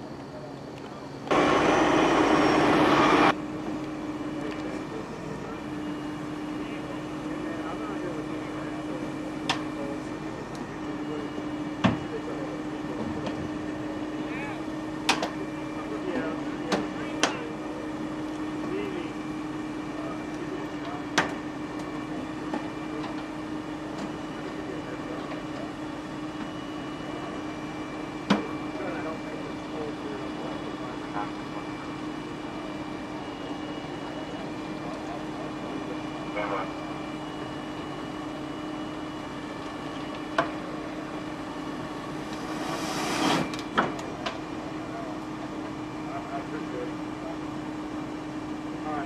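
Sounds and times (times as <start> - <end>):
machinery humming: 0.0 - 49.0
air hissing: 42.4 - 43.5.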